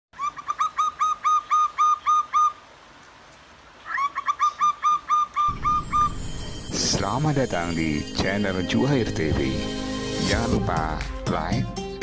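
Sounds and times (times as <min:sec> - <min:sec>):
dove cooing: 0:03.9 - 0:06.3.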